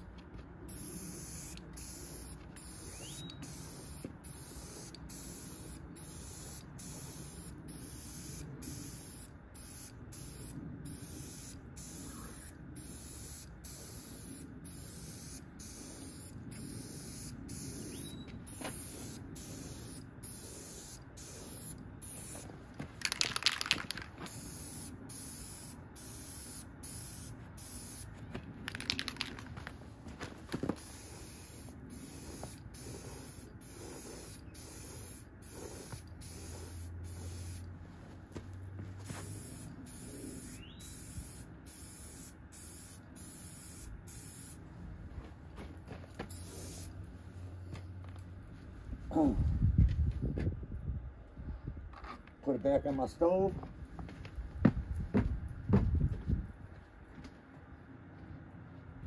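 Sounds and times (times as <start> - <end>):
spray can hissing: 0.7 - 28.1, 28.7 - 29.6, 30.8 - 37.7, 39.1 - 44.6, 46.2 - 47.0.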